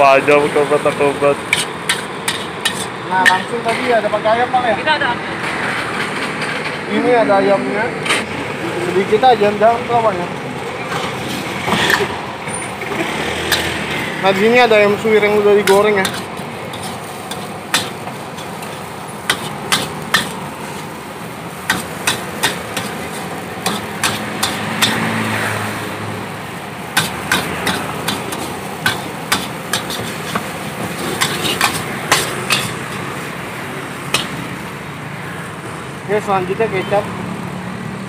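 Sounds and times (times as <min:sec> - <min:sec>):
metal spatula clanking on wok: 0:01.5 - 0:03.5, 0:13.5 - 0:13.8, 0:15.6 - 0:20.4, 0:21.7 - 0:25.1, 0:27.0 - 0:33.0, 0:34.1 - 0:34.5.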